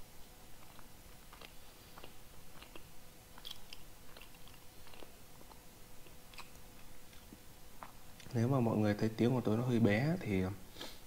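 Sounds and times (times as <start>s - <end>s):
chewing with mouth clicks: 0.5s - 8.4s
pastry crunching: 0.6s - 8.4s.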